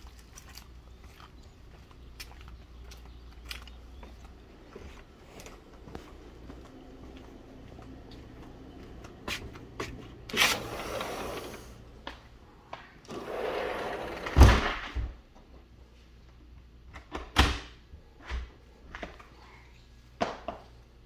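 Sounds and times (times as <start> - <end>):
sliding door rumbling: 10.2 - 12.0, 13.1 - 14.8
door closing with a bang: 14.2 - 15.1.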